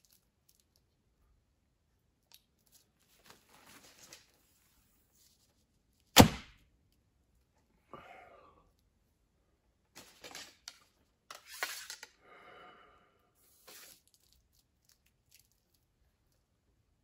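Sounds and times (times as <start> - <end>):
bow and arrow rustling: 10.0 - 12.0, 13.5 - 14.2.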